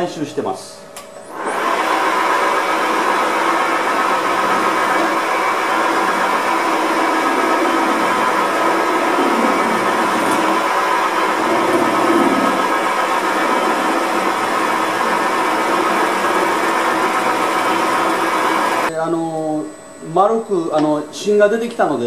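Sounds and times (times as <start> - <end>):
lathe spinning: 0.0 - 22.0
gouge cutting metal: 1.4 - 18.9.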